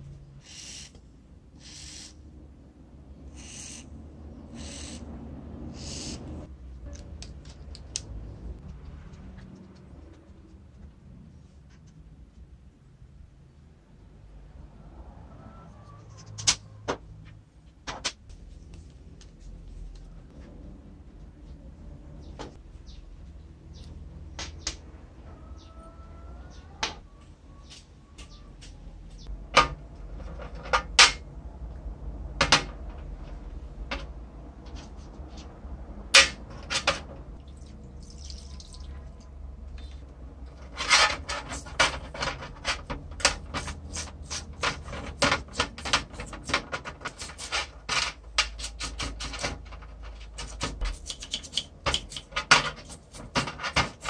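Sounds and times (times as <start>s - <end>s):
toothbrush scrubbing metal parts: 40.5s - 54.0s.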